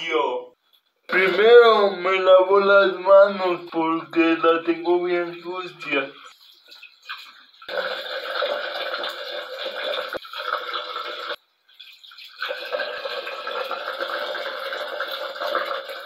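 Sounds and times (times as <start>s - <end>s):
tap water running into sink: 3.5s - 16.0s.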